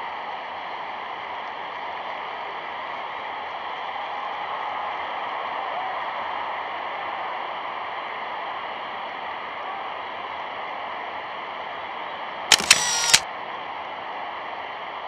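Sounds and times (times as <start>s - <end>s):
camera shutter click: 12.5s - 13.2s.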